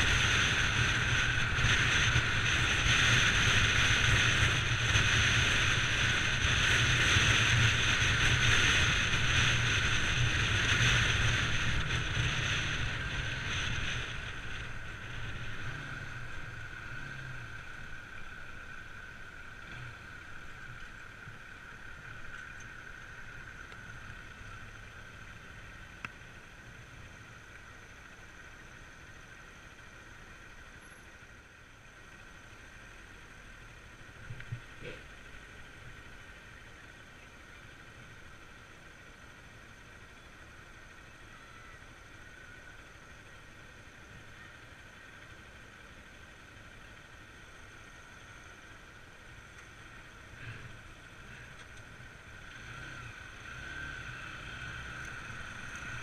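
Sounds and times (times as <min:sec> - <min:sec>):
motorcycle engine drone: 0:00.0 - 0:56.0.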